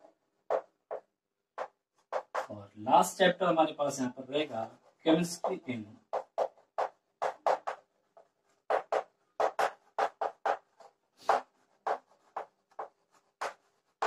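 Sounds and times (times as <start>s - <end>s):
chalk writing on blackboard: 0.5s - 2.5s, 5.1s - 14.0s.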